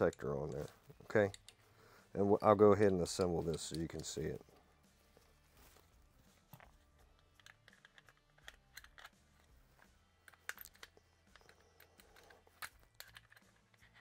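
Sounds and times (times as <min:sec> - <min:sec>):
pistol parts clicking: 0:00.0 - 0:01.6, 0:03.2 - 0:04.3, 0:06.5 - 0:14.0.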